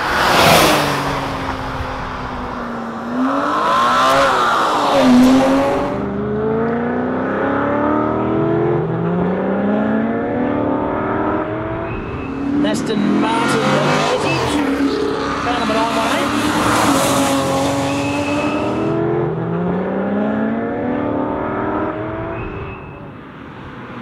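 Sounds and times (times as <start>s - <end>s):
car passing by: 0.0s - 6.1s, 12.0s - 18.9s
car engine revving hard: 0.0s - 22.4s.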